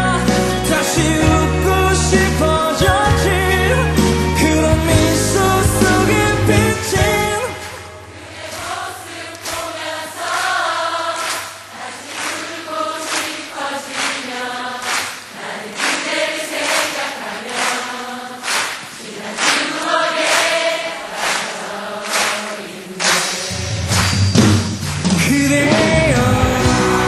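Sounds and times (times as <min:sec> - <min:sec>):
music with singing voices: 0:00.0 - 0:11.9, 0:19.3 - 0:27.0.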